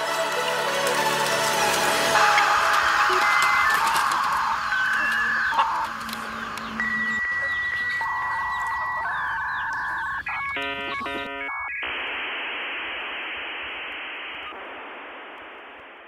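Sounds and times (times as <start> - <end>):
dial-up modem handshake: 3.1 - 11.9.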